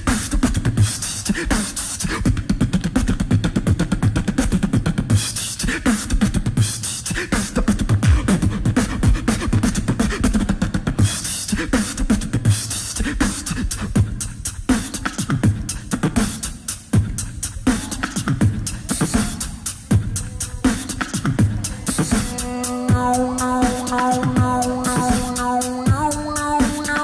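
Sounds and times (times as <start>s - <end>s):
beatboxing kick and bass: 0.0s - 27.0s
hissing high vocal layer: 16.8s - 27.0s.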